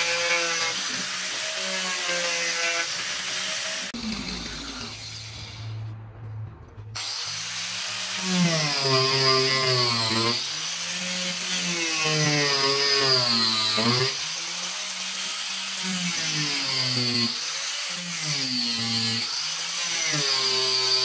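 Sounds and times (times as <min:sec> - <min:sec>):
angle grinder cutting wood: 0:00.0 - 0:21.0
low hum: 0:04.0 - 0:07.2.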